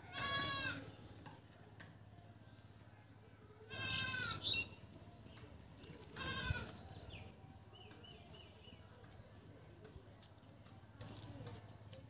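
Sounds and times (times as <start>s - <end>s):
goat bleating: 0.0s - 0.9s, 3.6s - 4.5s, 6.0s - 6.8s.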